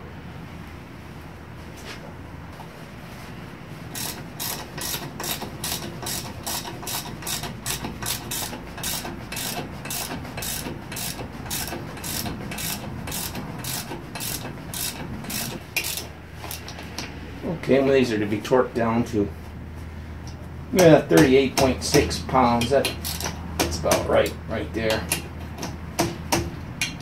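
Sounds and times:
ratchet wrench clicking: 0:03.9 - 0:16.8, 0:22.6 - 0:23.4.

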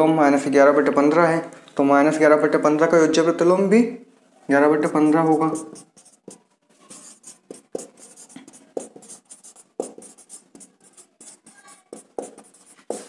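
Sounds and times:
pen scratching on paper: 0:05.0 - 0:13.0
writing tool tapping: 0:05.1 - 0:13.0.

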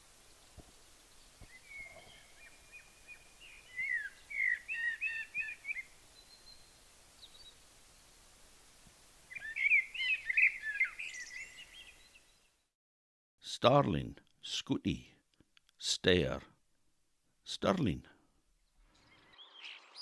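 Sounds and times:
blackbird singing: 0:01.4 - 0:07.6, 0:09.3 - 0:12.4, 0:18.6 - 0:20.0.

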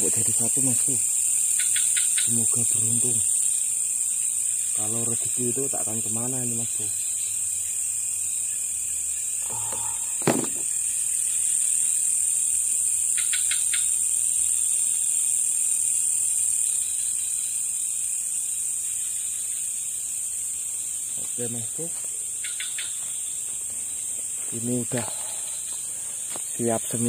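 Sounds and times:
crickets chirping: 0:00.0 - 0:27.0
sharp knock: 0:10.2 - 0:10.7.

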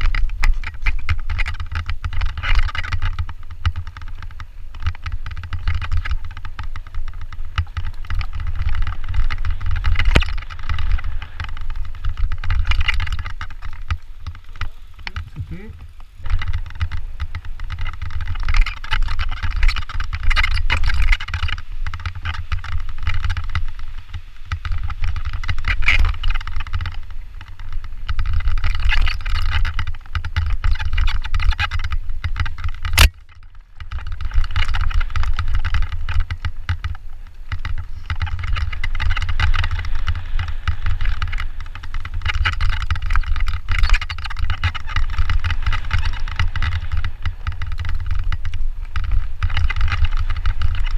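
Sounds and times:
bike tyres rattling over gravel: 0:00.0 - 0:50.9
wind rumbling on microphone: 0:00.0 - 0:50.9.

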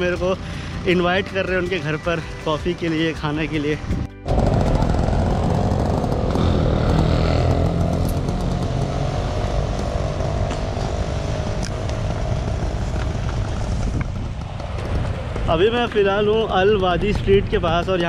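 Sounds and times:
vehicle engines running: 0:00.0 - 0:18.0.

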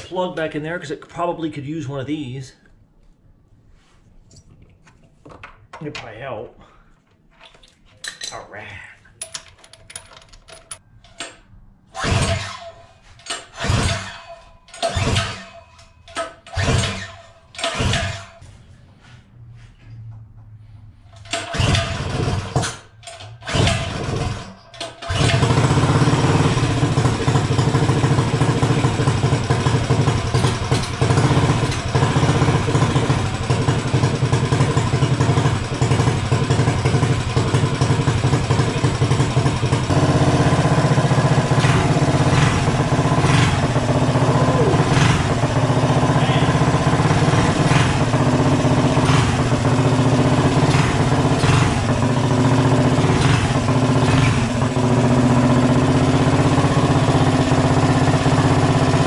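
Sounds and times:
recoil starter cord pulls: 0:21.2 - 0:27.8
small engine running loudly: 0:21.5 - 0:22.7, 0:23.4 - 0:59.0.

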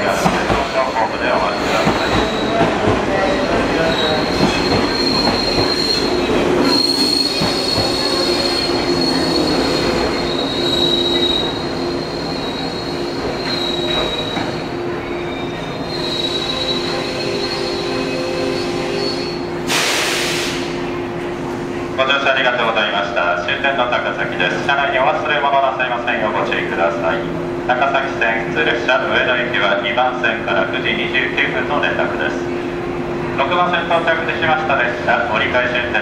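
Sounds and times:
rumble of train wheels: 0:00.0 - 0:36.0
train wheels squealing: 0:01.1 - 0:20.6
loud hiss: 0:19.6 - 0:20.8.

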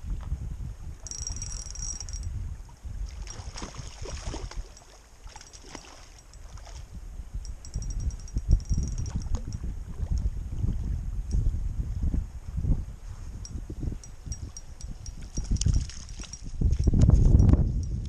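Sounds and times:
wind buffeting microphone: 0:00.0 - 0:05.0, 0:05.7 - 0:18.0
fishing reel ticking: 0:01.1 - 0:02.3, 0:07.5 - 0:09.6
fish splashing and thrashing: 0:03.1 - 0:06.8, 0:14.4 - 0:16.8.

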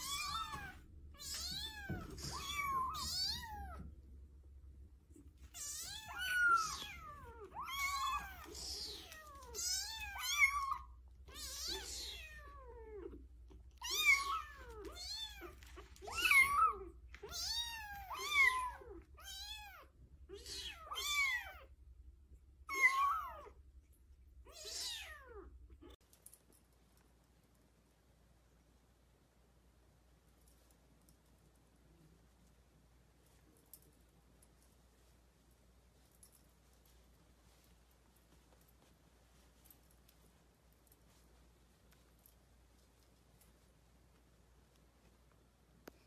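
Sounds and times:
kittens meowing: 0:00.0 - 0:03.9, 0:05.5 - 0:13.2, 0:13.8 - 0:21.7.

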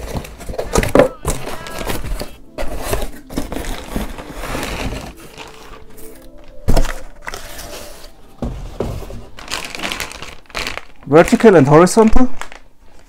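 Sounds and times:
cardboard box rustling and scraping: 0:00.0 - 0:10.2.

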